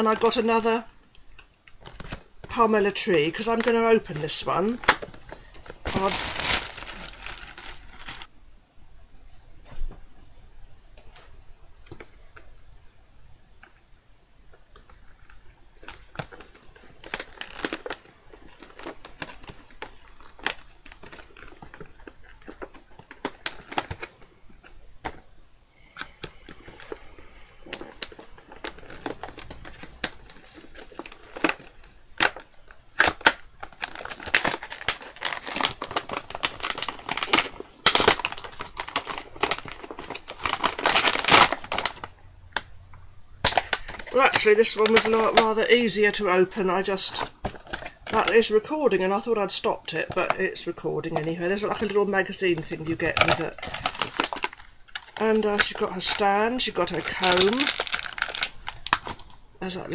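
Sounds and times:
packaging rustling: 1.8 - 8.3, 14.8 - 42.7, 43.4 - 59.9
packaging clicks and snaps: 14.5 - 27.0, 27.6 - 42.7, 43.4 - 45.6, 47.1 - 48.4, 52.6 - 59.4.

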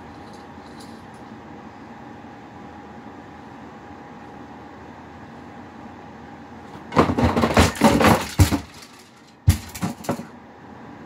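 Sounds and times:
objects crashing off a shelf: 6.8 - 10.4.

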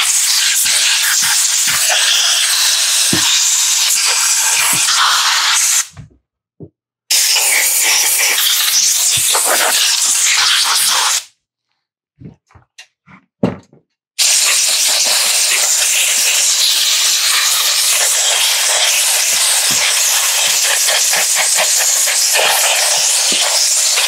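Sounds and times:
compressed air hissing: 0.0 - 5.9, 7.1 - 11.3, 14.2 - 24.0.

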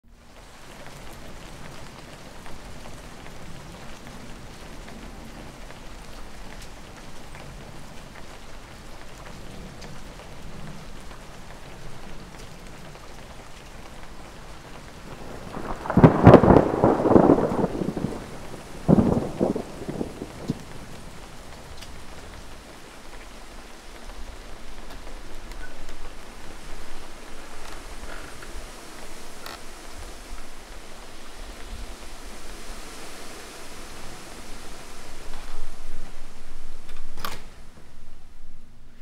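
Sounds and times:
steady rain: 0.0 - 39.0
thunder rumbling: 13.9 - 32.6.

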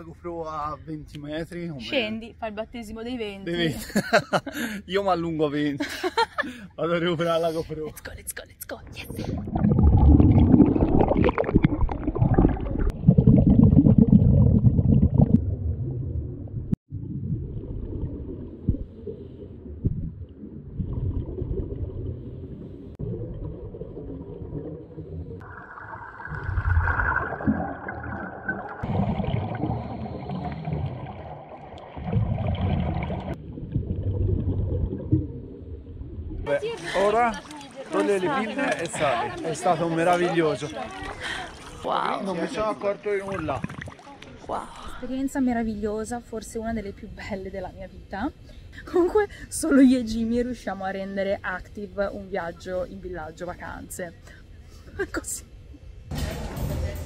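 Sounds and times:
underwater exhaled bubbles: 9.1 - 36.5, 43.2 - 44.2.

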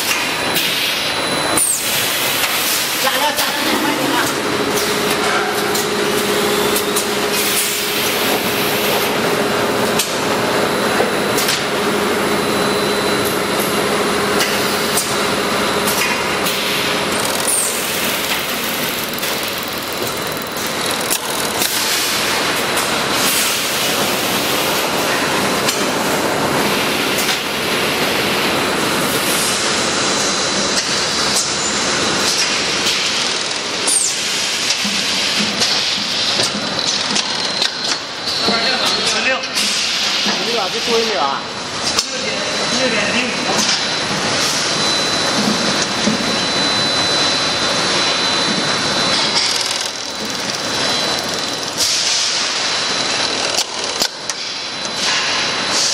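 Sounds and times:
machine din: 11.5 - 23.8, 48.1 - 54.9
machine clicks and knocks: 49.4 - 52.1.

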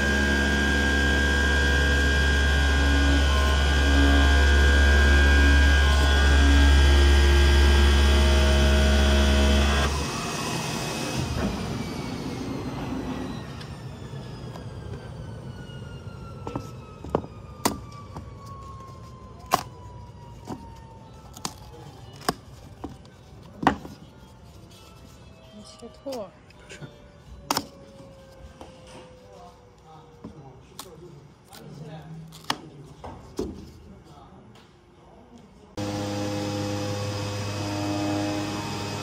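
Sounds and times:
cutting machine humming: 0.0 - 13.5, 35.8 - 39.0
motor whine winding down: 0.0 - 18.6, 35.8 - 39.0.

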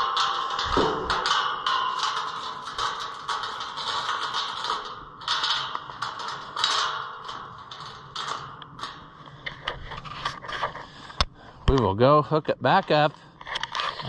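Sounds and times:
chain rattling against metal gate: 0.0 - 10.8.

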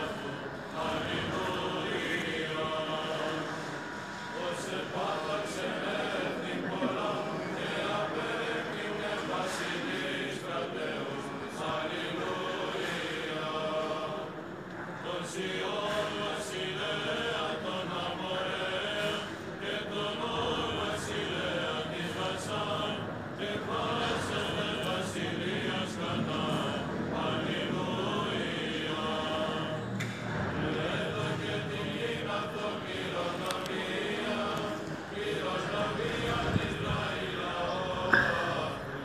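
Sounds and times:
liturgical church chanting: 0.0 - 39.0.

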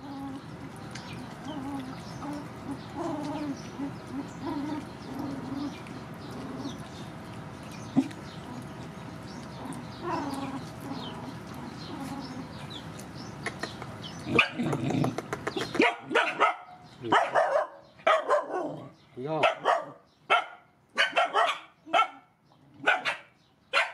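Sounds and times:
dog barking: 14.3 - 14.6, 15.8 - 23.9.

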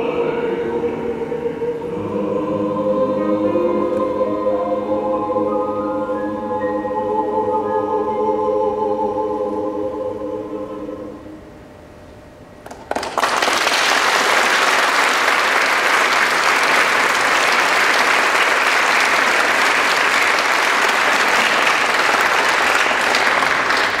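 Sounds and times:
choir holding a chord: 0.0 - 11.5
audience applauding: 12.6 - 24.0.

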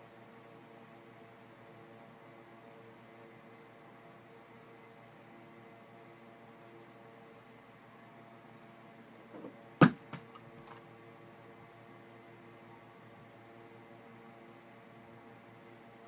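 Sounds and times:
sharp knock on wooden dresser: 9.4 - 10.3.

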